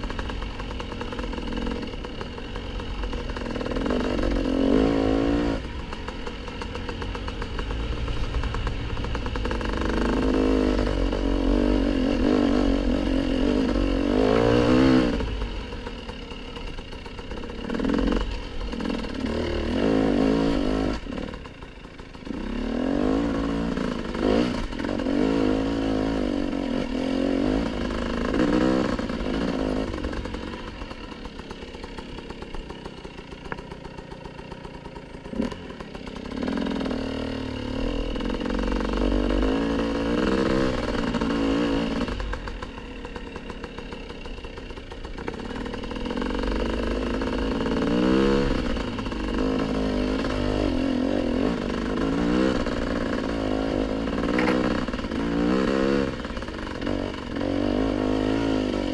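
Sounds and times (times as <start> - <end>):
dirt bike engine revving: 0.0 - 58.9.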